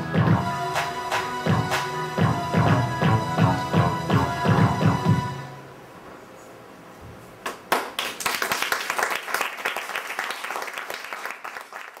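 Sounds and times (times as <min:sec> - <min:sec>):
audience applause: 0:07.7 - 0:12.0.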